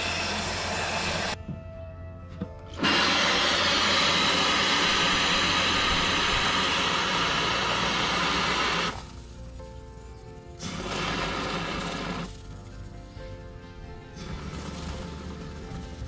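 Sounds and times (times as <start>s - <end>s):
spray foam can hissing: 2.8s - 9.2s, 10.6s - 12.4s.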